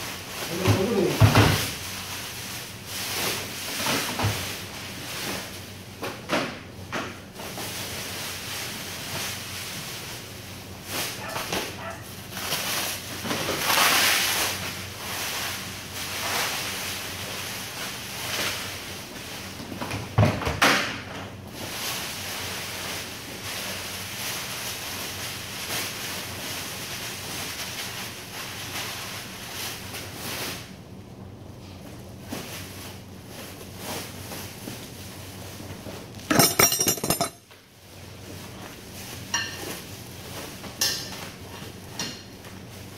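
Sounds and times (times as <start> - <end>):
plastic bag rustling: 0.0 - 6.0, 7.2 - 19.6, 21.5 - 30.8, 31.6 - 42.9.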